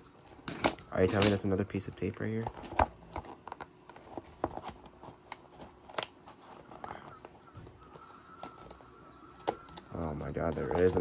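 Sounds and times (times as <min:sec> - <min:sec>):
cardboard clicks and rustles: 0:02.3 - 0:08.8.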